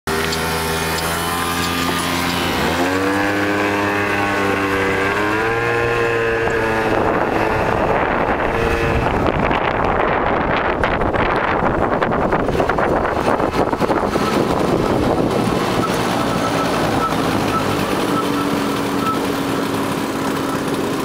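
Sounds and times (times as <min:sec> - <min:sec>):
motor scooter engine accelerating: 0:00.1 - 0:21.0
wind rushing over microphone: 0:01.8 - 0:18.0.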